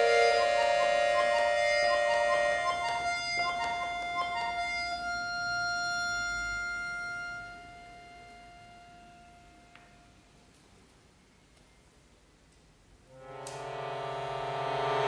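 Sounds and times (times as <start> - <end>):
piano accordion playing: 0.0 - 9.7, 13.1 - 15.0.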